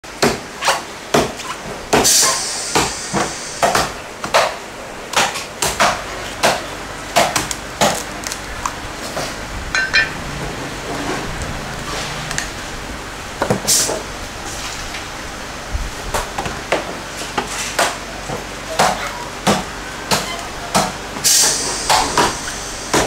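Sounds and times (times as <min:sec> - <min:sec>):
cleaver chopping coconut: 0:03.6 - 0:08.4.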